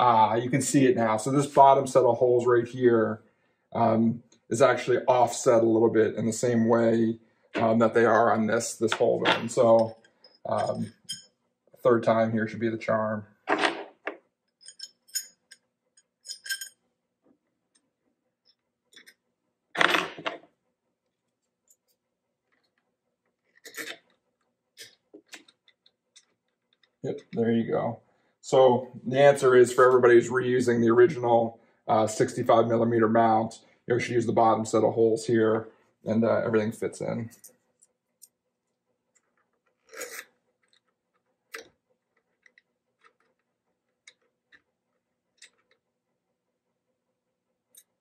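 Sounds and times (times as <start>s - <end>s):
metallic clicks of screws and tool: 14.5s - 16.8s.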